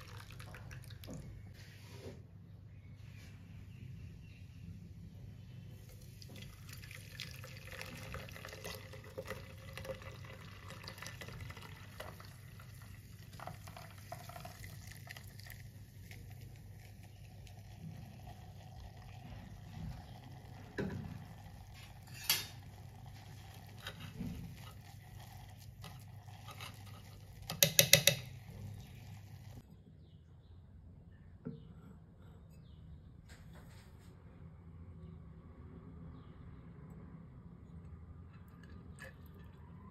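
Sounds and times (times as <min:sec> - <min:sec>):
liquid pouring into container: 0:00.0 - 0:01.5, 0:05.8 - 0:29.6, 0:38.4 - 0:39.9.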